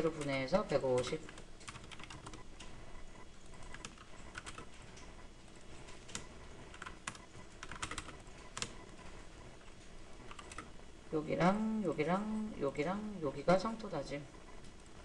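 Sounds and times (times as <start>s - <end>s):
computer keyboard typing: 0.0s - 2.8s, 3.4s - 10.8s.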